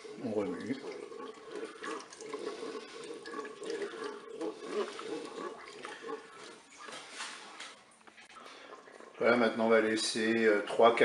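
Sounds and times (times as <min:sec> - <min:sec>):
spoon stirring thick mixture: 0:00.0 - 0:10.8.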